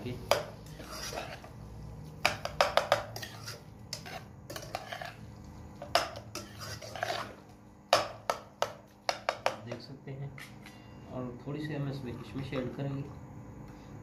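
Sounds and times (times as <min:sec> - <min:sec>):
spoon scraping and clinking pan: 0:00.3 - 0:01.6, 0:02.3 - 0:05.2, 0:05.8 - 0:07.4.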